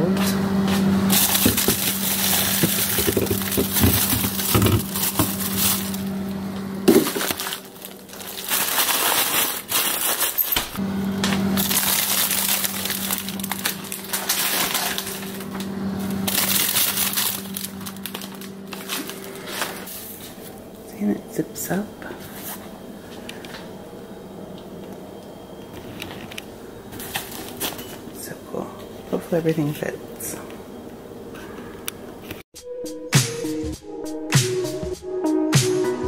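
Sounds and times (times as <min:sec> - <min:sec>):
steady low hum: 0:00.0 - 0:09.9, 0:10.8 - 0:32.4
frozen items knocking: 0:01.1 - 0:06.1, 0:06.8 - 0:15.6, 0:16.2 - 0:19.4
plastic bags crinkling: 0:01.1 - 0:19.9, 0:27.0 - 0:28.1.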